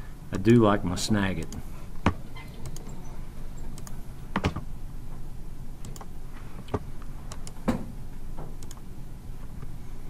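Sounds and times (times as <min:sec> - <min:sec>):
steady low hum: 0:00.0 - 0:10.0
computer clicks: 0:01.4 - 0:03.0, 0:03.7 - 0:04.6, 0:05.8 - 0:06.1, 0:06.7 - 0:07.6, 0:08.6 - 0:08.8.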